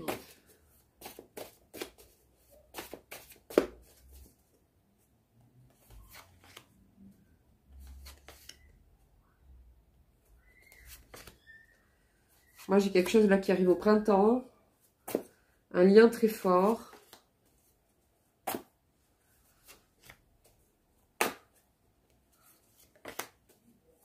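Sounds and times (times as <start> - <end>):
cards being shuffled: 0.0 - 4.3, 5.8 - 6.8, 7.8 - 8.7, 10.6 - 11.5, 19.6 - 20.6, 22.6 - 23.6
cards rustling on cloth: 0.0 - 4.6, 7.8 - 8.7, 10.4 - 11.6, 22.2 - 24.0
card snaps: 21.2 - 21.5.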